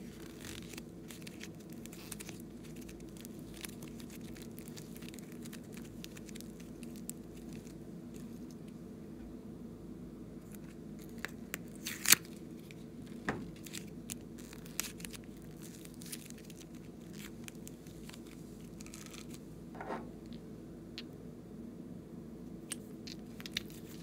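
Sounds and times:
clay squishing and tearing: 0.0s - 8.6s, 10.5s - 19.4s, 22.7s - 24.0s
faint steady hum: 0.0s - 24.0s.

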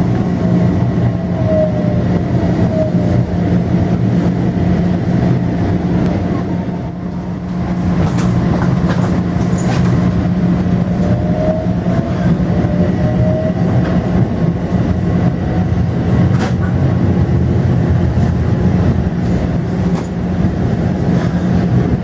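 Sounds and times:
train running gear hum: 0.0s - 22.0s
wheels clicking over rail joints: 8.0s - 11.2s.

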